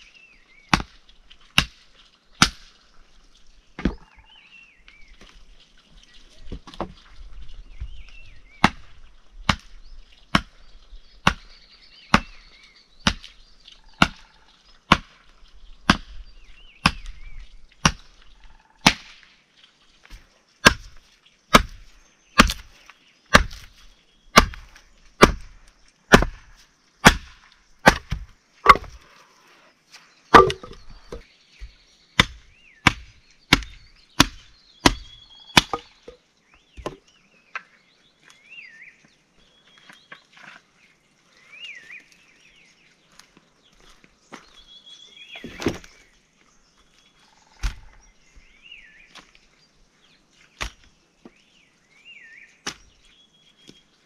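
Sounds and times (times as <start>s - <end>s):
axe chopping firewood: 0.6s - 2.8s, 3.8s - 4.0s, 8.6s - 10.6s, 11.2s - 13.4s, 14.0s - 14.2s, 14.8s - 16.2s, 16.8s - 17.2s, 17.8s - 18.2s, 18.8s - 19.2s, 20.1s - 29.0s, 30.3s - 36.2s, 45.4s - 45.9s, 47.6s - 47.9s, 50.6s - 50.9s, 52.6s - 53.0s.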